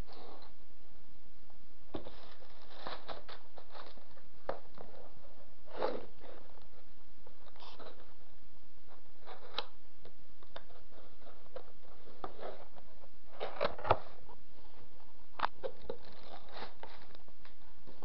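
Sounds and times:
cardboard box and plastic handled: 15.5s - 18.0s.

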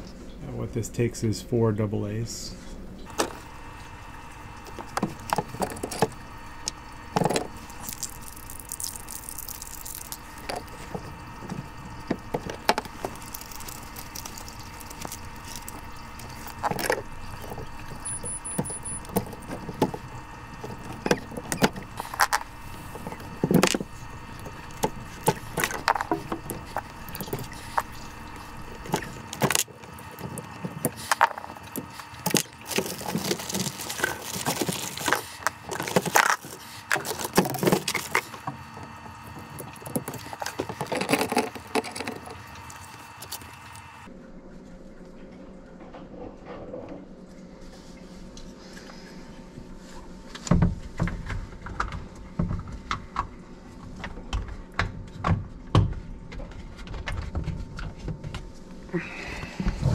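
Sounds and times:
clicks and rattles of handling: 28.8s - 42.4s.

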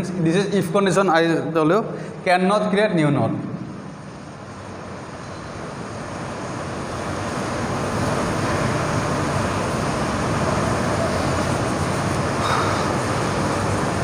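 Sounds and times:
steady rushing noise: 3.3s - 14.0s.

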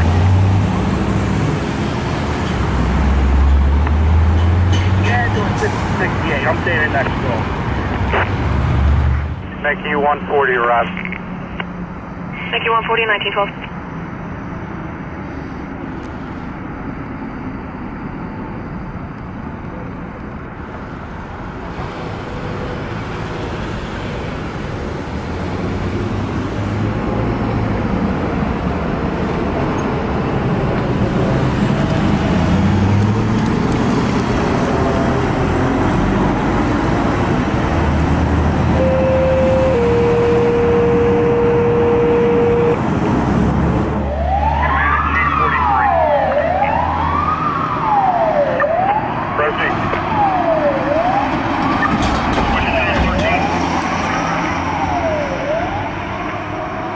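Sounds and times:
van engine and tyre noise: 0.0s - 56.9s
steady tone: 38.8s - 42.8s.

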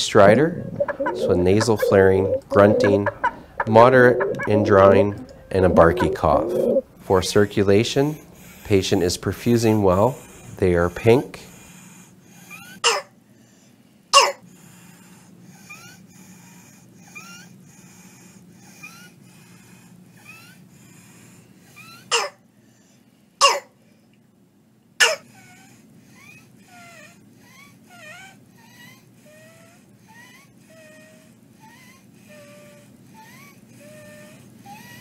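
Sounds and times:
high-pitched stridor breathing: 0.0s - 12.8s, 28.6s - 35.0s
harsh barky cough: 12.8s - 13.2s, 14.2s - 14.5s, 22.1s - 22.4s, 23.4s - 23.8s, 25.0s - 25.4s.

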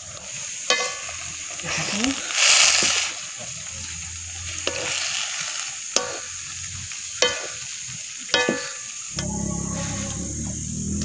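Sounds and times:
vegetables sizzling in a wok: 0.0s - 11.0s
spatula striking wok: 0.5s - 1.6s, 3.7s - 9.4s.

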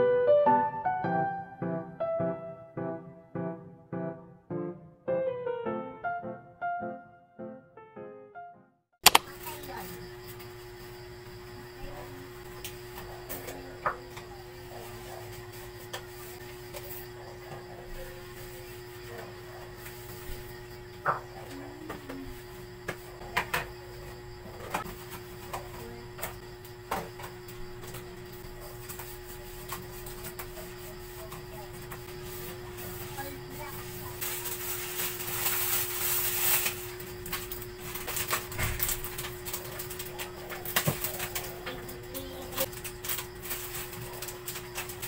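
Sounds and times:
plastic bags rustling: 32.8s - 45.0s.

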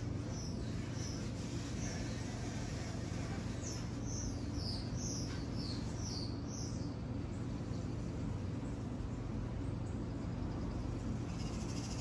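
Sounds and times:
songbird chirping: 3.6s - 12.0s.

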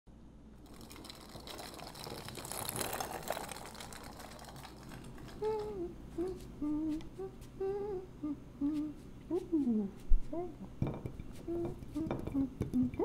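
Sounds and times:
person humming a sliding tune: 5.3s - 10.7s, 11.3s - 13.0s.

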